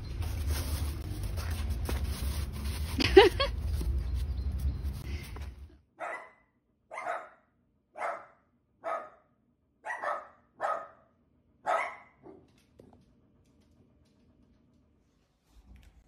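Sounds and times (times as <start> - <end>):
dog barking sharply: 6.0 - 9.2, 9.8 - 11.0, 11.6 - 12.4.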